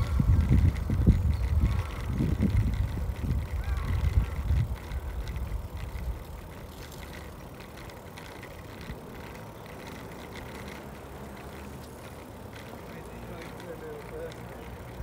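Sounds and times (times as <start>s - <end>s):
wind rumble on microphone: 0.0s - 7.4s
street background: 0.0s - 15.0s
light ticks: 0.2s - 15.0s.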